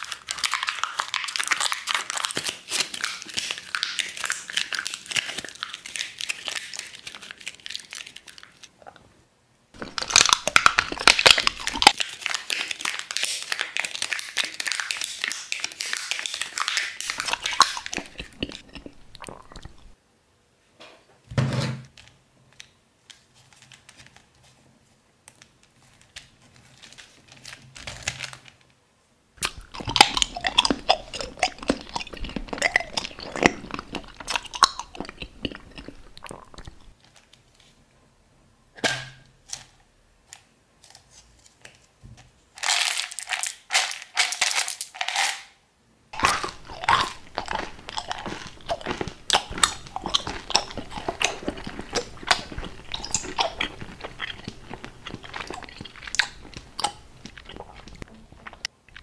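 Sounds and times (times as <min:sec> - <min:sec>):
plastic wrap crinkling: 0:00.0 - 0:08.8, 0:09.8 - 0:20.0, 0:22.5 - 0:28.8, 0:39.4 - 0:45.4, 0:46.2 - 0:58.7.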